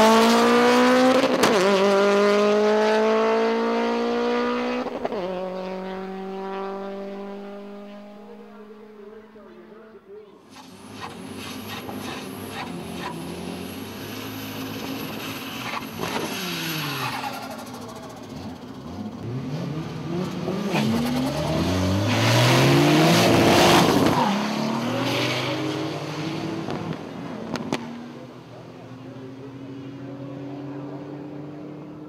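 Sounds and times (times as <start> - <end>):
racing car engine revving: 0.0 - 9.2, 10.5 - 32.0
cars accelerating hard: 0.0 - 9.4, 10.5 - 32.0
tire squeal: 10.5 - 18.8, 23.8 - 25.8.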